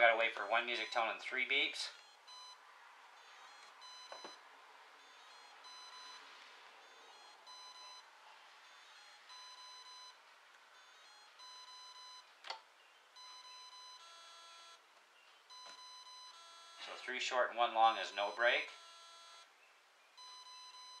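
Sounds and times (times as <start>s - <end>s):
long motor beep: 0.4s - 2.6s, 3.2s - 4.4s, 5.0s - 10.2s, 10.8s - 12.3s, 13.2s - 14.8s, 15.5s - 17.0s, 18.0s - 19.5s, 20.2s - 21.0s.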